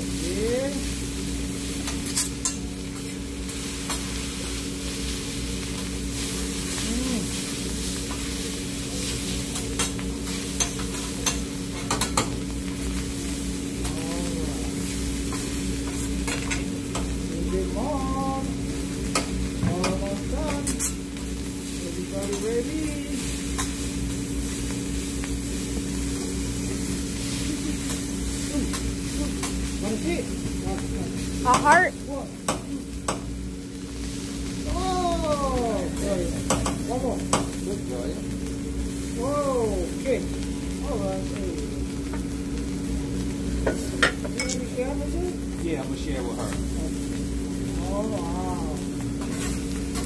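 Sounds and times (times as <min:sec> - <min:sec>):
rice sizzling on a griddle: 0:00.0 - 0:50.0
spatulas clinking on metal: 0:44.0 - 0:44.7.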